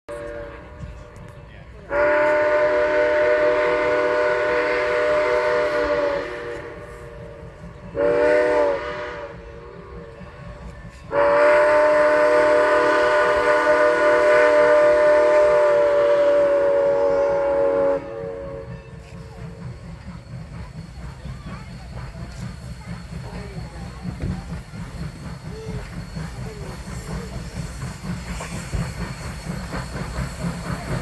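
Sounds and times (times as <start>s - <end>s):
steam locomotive whistle: 0.1s - 0.9s, 1.9s - 10.4s, 11.0s - 20.0s.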